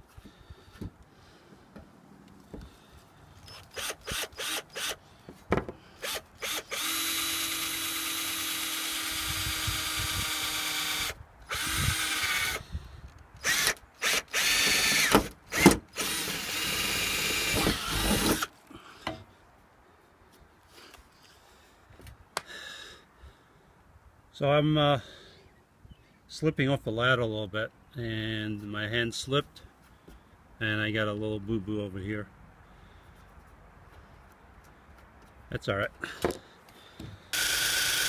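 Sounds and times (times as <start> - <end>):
drill motor whining through sheet metal: 37.3 - 38.0.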